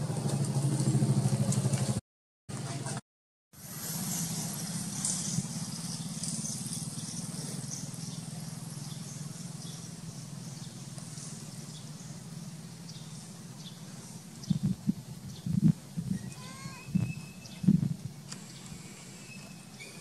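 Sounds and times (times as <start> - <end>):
low motor hum: 0.0 - 2.0
faint short chirps: 19.0 - 20.0.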